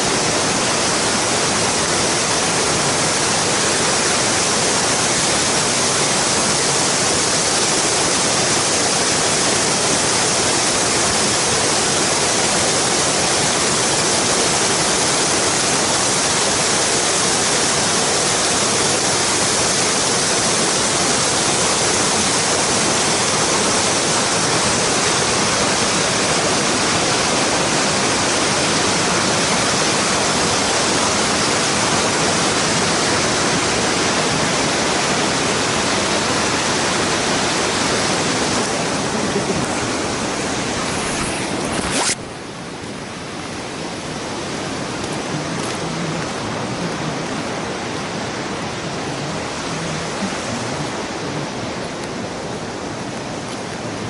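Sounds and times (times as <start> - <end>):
waterfall rushing over rock: 0.0 - 54.0.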